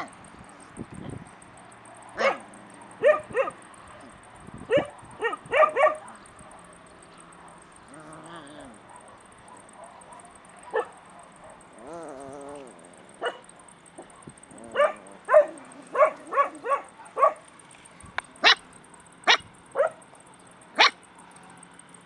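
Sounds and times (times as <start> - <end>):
puppy yelping and whining: 11.8 - 12.8.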